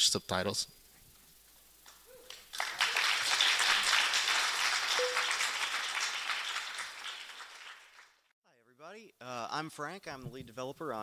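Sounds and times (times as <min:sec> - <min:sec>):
audience applauding: 0:02.3 - 0:08.3.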